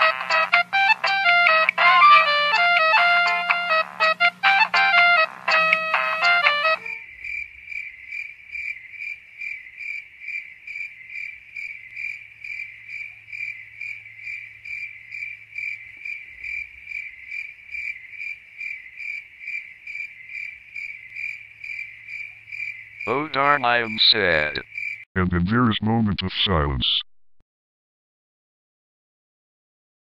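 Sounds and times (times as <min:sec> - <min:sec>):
short tune: 0:00.0 - 0:07.0, 0:23.1 - 0:24.6
cricket chirping: 0:06.8 - 0:23.1, 0:24.6 - 0:25.0.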